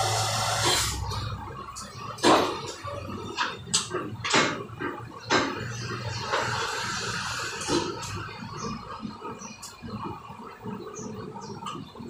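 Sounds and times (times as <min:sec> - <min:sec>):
milling machine drilling steel: 0:00.0 - 0:01.0.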